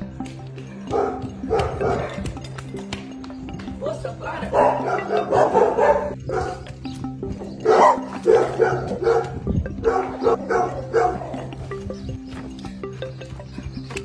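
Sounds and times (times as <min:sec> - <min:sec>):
background music: 0:00.0 - 0:14.0
dog barking: 0:00.8 - 0:02.2, 0:04.5 - 0:06.6, 0:07.6 - 0:11.6.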